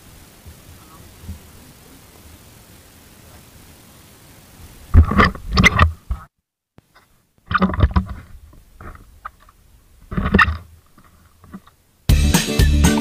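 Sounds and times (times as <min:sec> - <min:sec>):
camera handling noise on microphone: 0:04.9 - 0:11.8.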